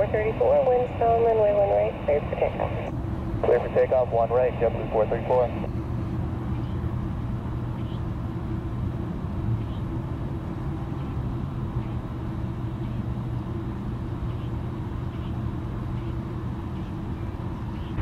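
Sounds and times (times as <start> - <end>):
constant low hum: 0.0 - 18.0
distant jet engines rumbling: 0.0 - 18.0.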